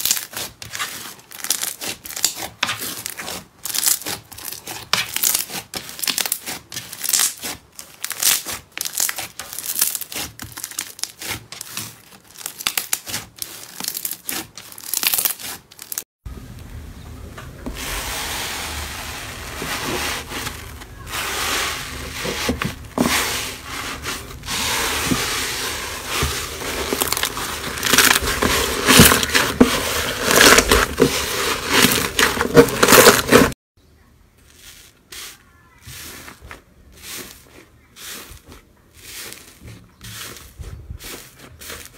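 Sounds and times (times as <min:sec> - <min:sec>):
slime crackling and popping: 0:01.3 - 0:16.0, 0:26.6 - 0:29.6.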